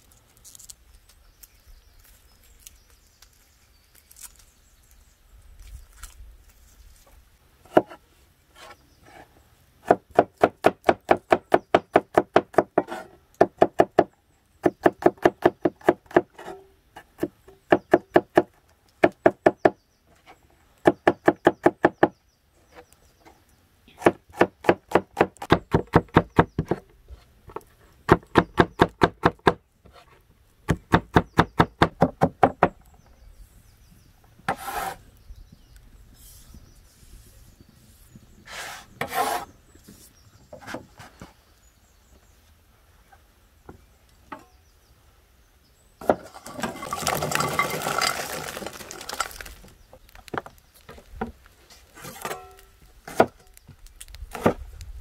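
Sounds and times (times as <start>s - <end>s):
rustling scraping noise: 0.0s - 9.4s, 29.8s - 30.3s, 34.5s - 35.1s, 36.0s - 41.5s, 46.1s - 53.5s
blade scraping board: 12.8s - 13.2s, 34.5s - 35.1s, 37.9s - 41.4s.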